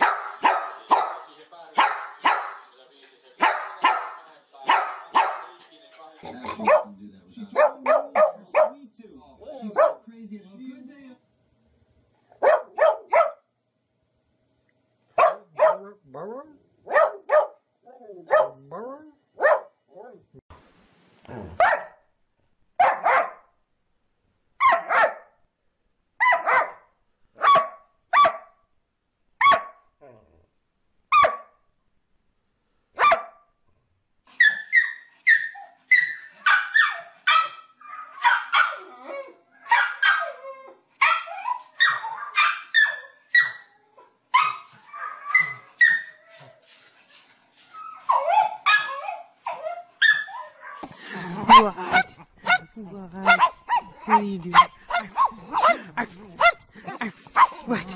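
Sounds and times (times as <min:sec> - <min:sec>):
dog barking: 0:00.0 - 0:02.6, 0:03.4 - 0:05.6, 0:06.3 - 0:08.8, 0:09.6 - 0:10.1, 0:12.3 - 0:13.4, 0:15.2 - 0:16.0, 0:16.8 - 0:17.6, 0:18.2 - 0:18.7, 0:19.4 - 0:20.2, 0:21.6 - 0:22.0, 0:22.8 - 0:23.5, 0:24.6 - 0:25.4, 0:26.2 - 0:28.6, 0:29.4 - 0:29.9, 0:31.1 - 0:31.6, 0:33.0 - 0:33.5, 0:36.4 - 0:38.9, 0:39.6 - 0:40.4, 0:41.0 - 0:43.6, 0:50.0 - 0:57.9
small dog yipping: 0:31.1 - 0:31.5, 0:34.4 - 0:38.9, 0:39.6 - 0:40.4, 0:41.0 - 0:46.9, 0:47.7 - 0:50.8.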